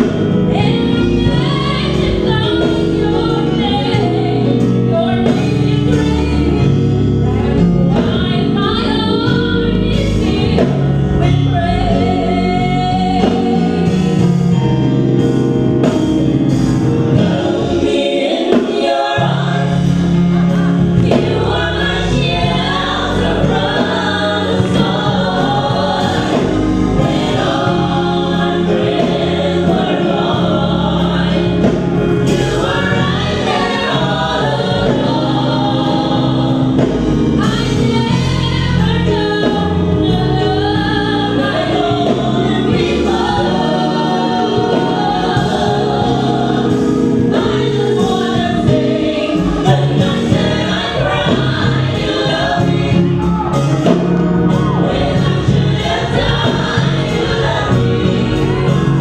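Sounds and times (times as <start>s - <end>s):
gospel group singing in harmony: 0.0s - 59.0s.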